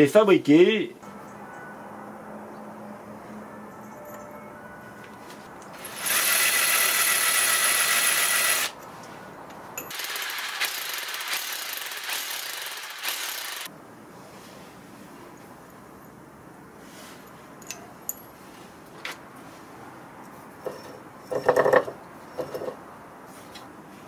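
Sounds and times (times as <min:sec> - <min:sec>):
hammer drill boring into stone: 0:05.8 - 0:08.7, 0:09.9 - 0:13.7
small knocks: 0:20.6 - 0:22.8.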